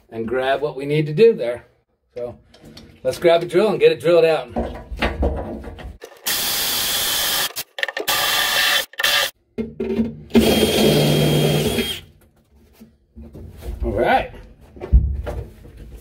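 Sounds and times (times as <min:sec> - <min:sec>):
cordless drill running: 0:06.2 - 0:09.3, 0:10.3 - 0:12.1.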